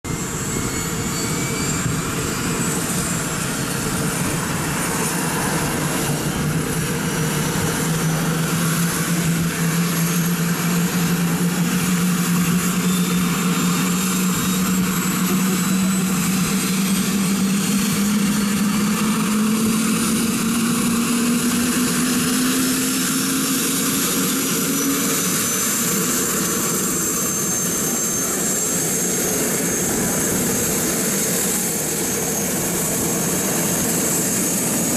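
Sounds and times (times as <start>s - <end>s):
helicopter turbine whine: 0.0s - 34.9s.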